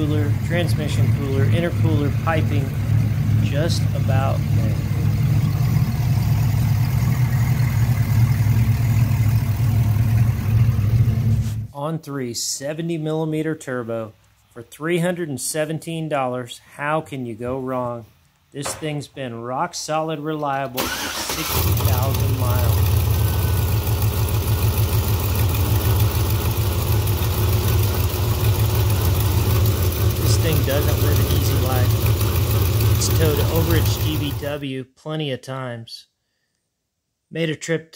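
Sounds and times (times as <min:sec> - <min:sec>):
engine idling: 0:00.0 - 0:11.6, 0:20.8 - 0:34.6.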